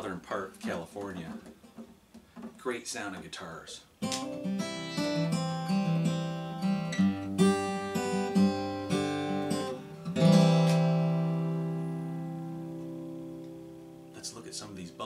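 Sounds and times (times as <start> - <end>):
guitar chord strummed and ringing: 4.0 - 14.2
acoustic guitar picking: 4.0 - 15.0.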